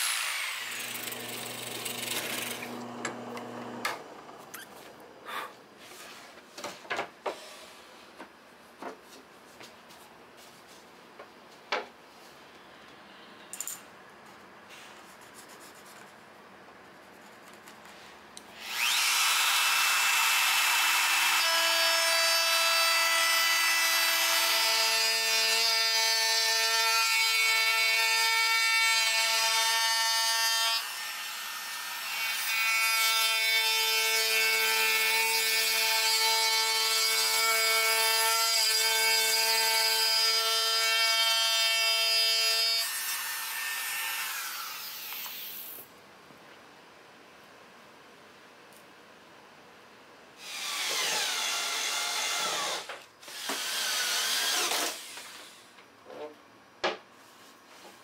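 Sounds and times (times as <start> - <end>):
router bit grating wood: 0.0 - 3.9, 18.6 - 22.7
trim router motor whine: 0.0 - 4.4, 18.6 - 21.6.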